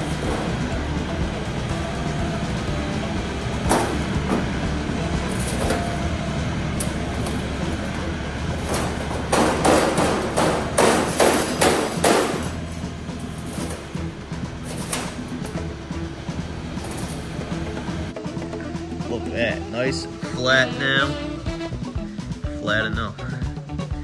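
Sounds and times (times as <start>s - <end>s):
mini excavator running: 0.0s - 18.5s
metal frame clicking and knocking: 8.5s - 15.6s.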